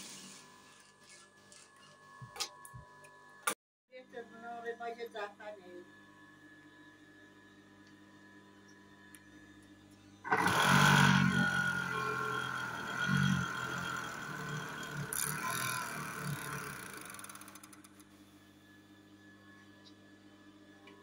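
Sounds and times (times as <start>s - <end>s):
overlock sewing machine whine: 10.2s - 18.3s.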